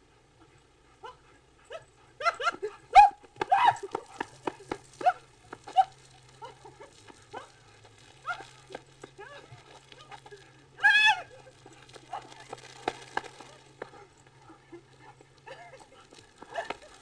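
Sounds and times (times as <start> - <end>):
dog barking and yelping: 1.0 - 4.0.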